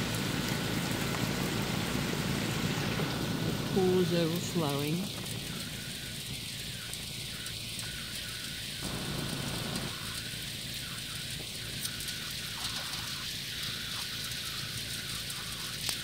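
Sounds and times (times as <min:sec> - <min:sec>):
low rumble: 0:00.0 - 0:07.6, 0:08.8 - 0:10.3
rain falling on wet lawn: 0:00.0 - 0:16.0.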